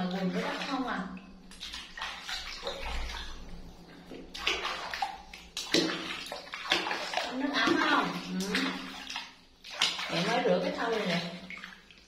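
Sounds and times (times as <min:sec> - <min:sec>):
water splashing in a plastic tub: 0:00.0 - 0:12.0.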